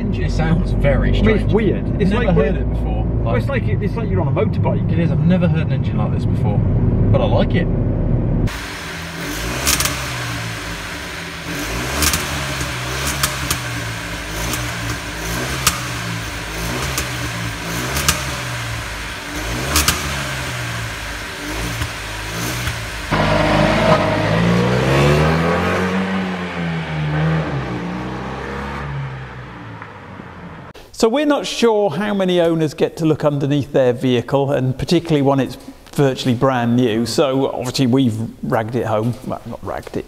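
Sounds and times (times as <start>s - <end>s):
car exhaust revving: 0.0s - 30.8s.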